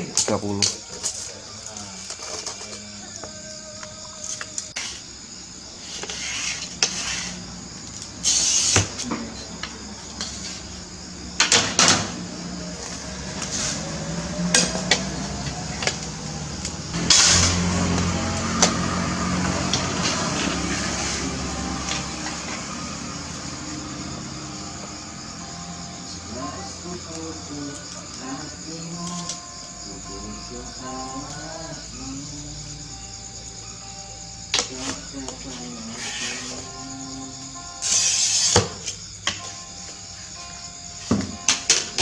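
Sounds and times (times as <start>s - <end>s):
glass cutter scratching glass: 5.8s - 7.5s, 17.0s - 17.7s, 35.9s - 36.6s
thin high whine: 16.9s - 38.6s.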